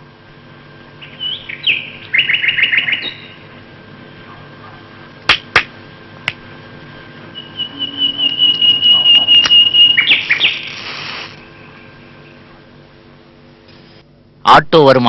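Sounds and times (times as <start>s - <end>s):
high whistle: 7.3s - 11.4s
match striking and flaring: 10.1s - 11.4s.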